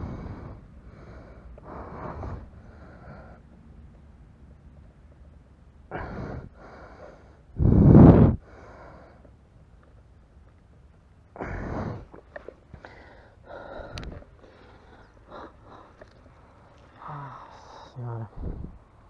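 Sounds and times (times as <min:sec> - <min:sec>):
man breathing hard: 0:00.0 - 0:03.4, 0:05.9 - 0:09.3, 0:11.4 - 0:18.8.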